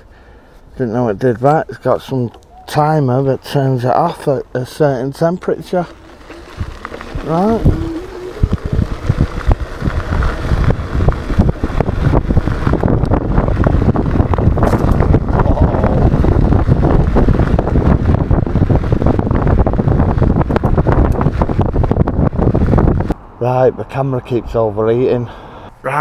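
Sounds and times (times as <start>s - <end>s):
scooter rattling on bumps: 5.1s - 23.1s
wind buffeting microphone: 5.4s - 25.4s.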